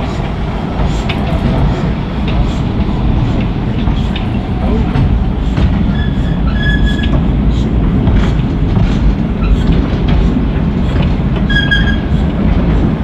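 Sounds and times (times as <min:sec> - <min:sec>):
wheels clacking over rail joints: 0:00.0 - 0:13.0
high wheel squeal: 0:05.8 - 0:07.2, 0:11.4 - 0:12.3.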